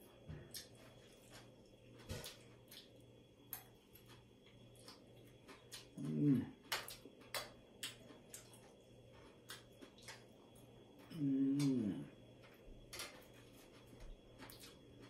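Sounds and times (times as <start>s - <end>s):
man humming mmm: 6.0s - 6.5s, 11.1s - 12.1s.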